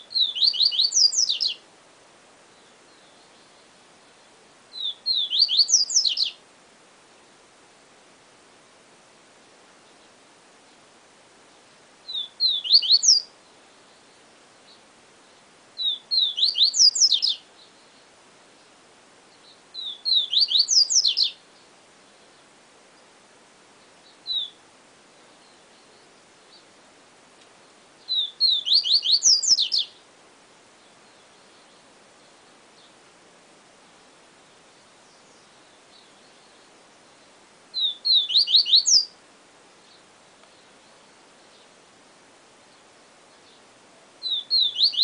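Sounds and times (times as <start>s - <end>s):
seedeater bird singing: 0.0s - 1.6s, 2.5s - 6.4s, 12.0s - 23.1s, 23.8s - 24.6s, 27.6s - 30.0s, 33.9s - 39.2s, 42.7s - 45.0s.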